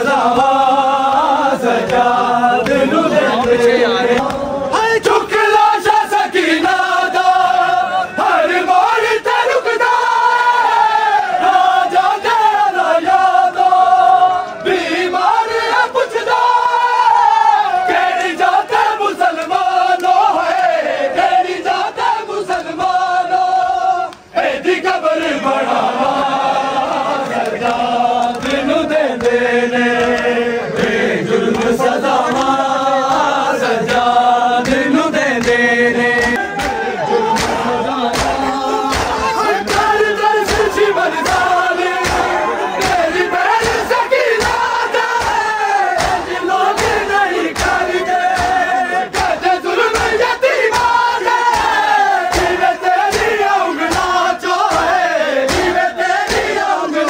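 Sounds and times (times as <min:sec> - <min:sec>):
men chanting a lament: 0:00.0 - 0:57.0
chest-beating slaps: 0:31.4 - 0:56.6.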